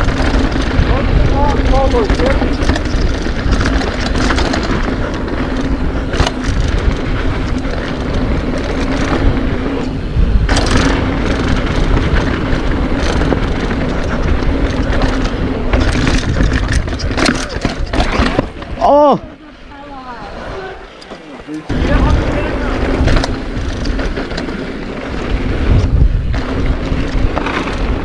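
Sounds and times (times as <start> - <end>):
bike tyre roar: 0.0 - 28.0
wind rush: 0.0 - 28.0
bike landing knocks: 10.4 - 19.0.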